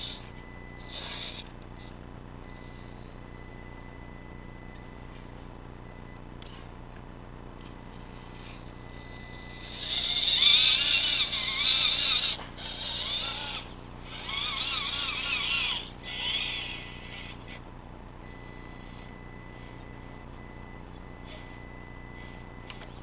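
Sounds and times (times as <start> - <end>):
electric motor and gears whining: 0.0 - 4.4, 7.6 - 17.6.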